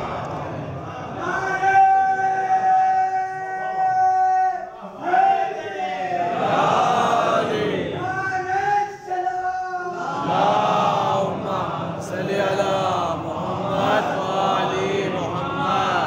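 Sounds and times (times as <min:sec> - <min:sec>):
men chanting together: 0:04.8 - 0:08.2, 0:09.9 - 0:16.0.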